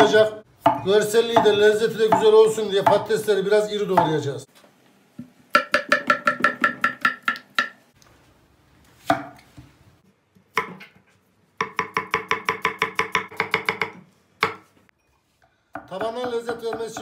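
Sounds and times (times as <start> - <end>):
knife chopping on wooden board: 9.0 - 9.4, 10.5 - 10.9, 11.6 - 14.7, 15.8 - 17.0.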